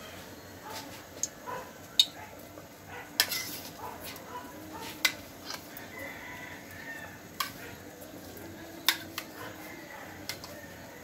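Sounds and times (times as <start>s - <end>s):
metal spoon clinking bowl: 3.2s - 3.7s.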